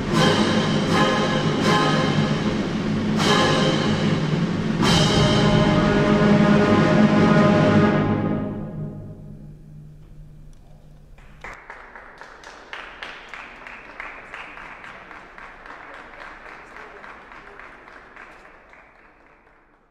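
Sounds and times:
audience applause: 11.2 - 19.9.

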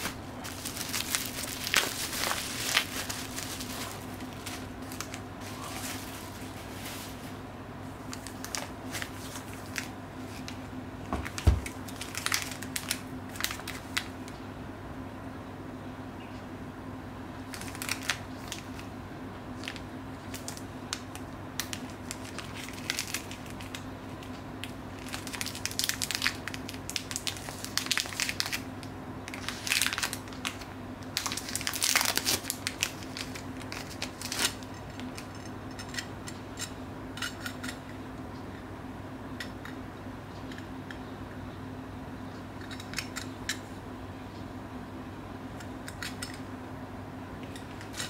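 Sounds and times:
plastic bag crinkling: 0.0 - 7.4, 8.0 - 10.6, 11.2 - 14.1, 17.5 - 18.9, 19.6 - 23.8, 24.6 - 28.7, 29.3 - 35.2
steady low hum: 0.0 - 48.0.

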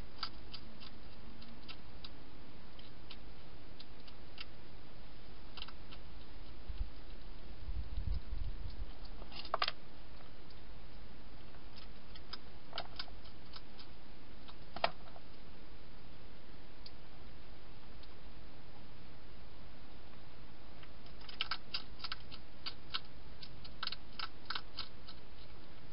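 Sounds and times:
steady hiss: 0.0 - 25.9
hedgehog crunching dry food: 0.1 - 4.6, 5.5 - 15.4, 20.8 - 25.6.

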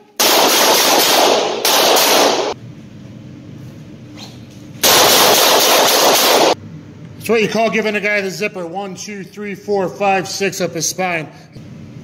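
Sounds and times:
revolver shots indoors: 0.0 - 2.8, 4.1 - 6.6.

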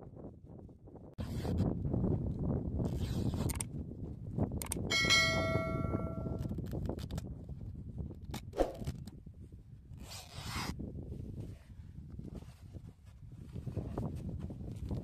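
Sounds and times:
wind on microphone: 0.0 - 15.0
notification ding: 4.9 - 6.4.

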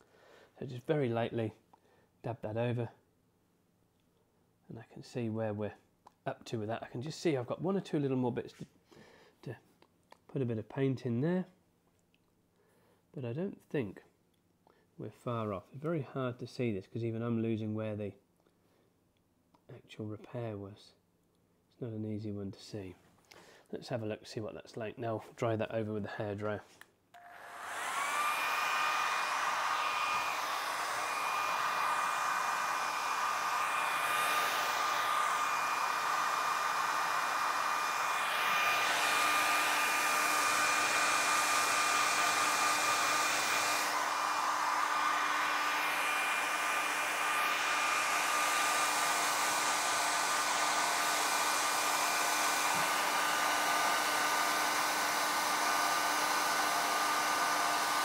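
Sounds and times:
hair dryer running: 27.2 - 58.0.

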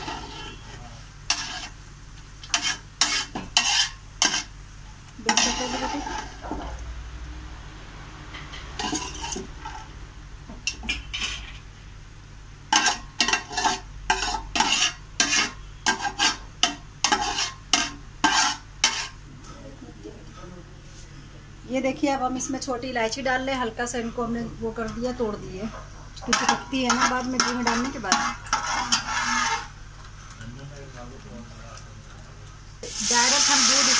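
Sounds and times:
metal spoon scraping a metal pot: 0.0 - 1.8, 2.5 - 4.5, 5.2 - 6.6, 8.6 - 9.9, 12.7 - 19.2, 26.3 - 29.8
sizzling hot fat: 0.0 - 7.0, 32.8 - 33.9.

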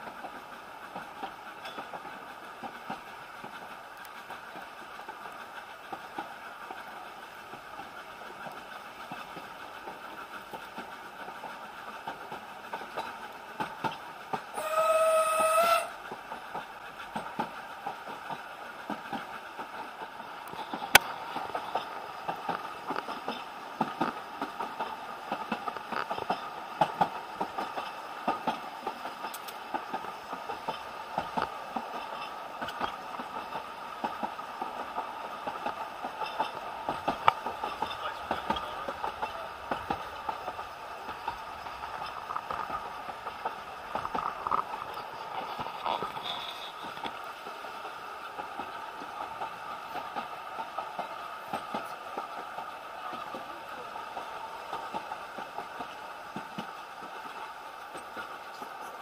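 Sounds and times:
train carriage rumbling on track: 0.0 - 59.0
steam locomotive whistle: 14.5 - 16.0.

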